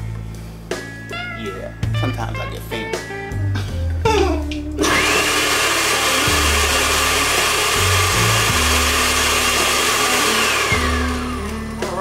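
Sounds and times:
background music with bass: 0.0s - 12.0s
electric blender whining: 4.8s - 12.0s.

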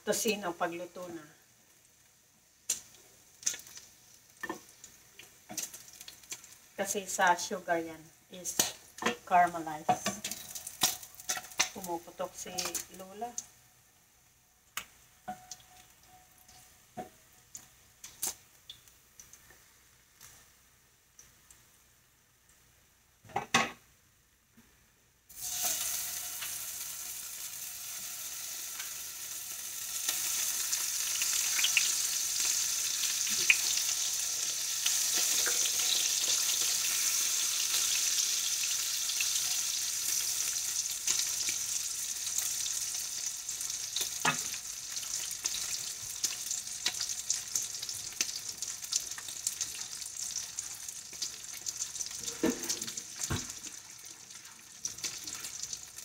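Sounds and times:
meat sizzling in hot oil: 1.5s - 7.5s, 10.1s - 13.6s, 25.3s - 56.0s.

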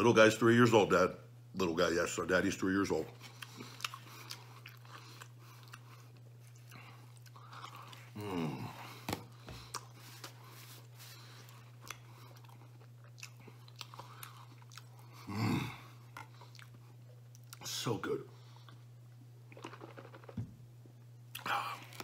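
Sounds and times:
steady low hum: 0.0s - 22.0s
man chewing food: 3.0s - 17.6s, 18.4s - 20.5s, 21.2s - 22.0s.

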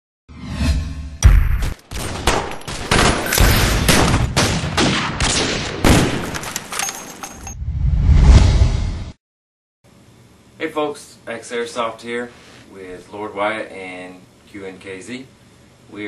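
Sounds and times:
gunshots with ringing tail: 2.0s - 6.3s.

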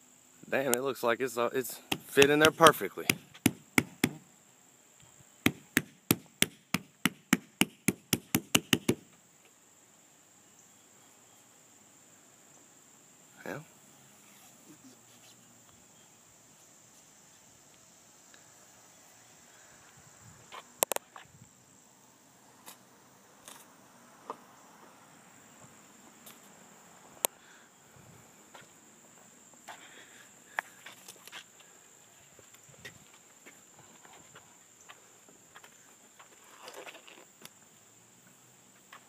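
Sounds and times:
insect chirring: 0.0s - 39.0s
sharp clicks: 1.9s - 4.2s.

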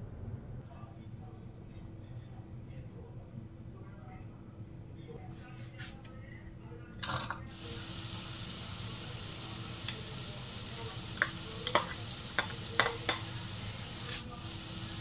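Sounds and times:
onion sizzling in hot oil: 7.5s - 15.0s
sharp crackles of frying: 7.5s - 15.0s.

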